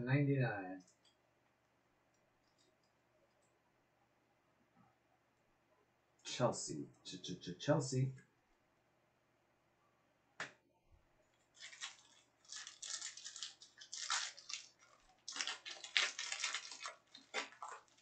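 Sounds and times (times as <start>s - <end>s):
crinkling of wrappers and cards: 11.4s - 18.0s.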